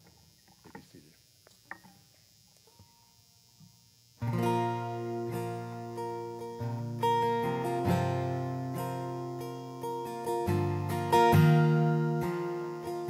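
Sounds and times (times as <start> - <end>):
acoustic guitar strumming chords: 4.2 - 13.0.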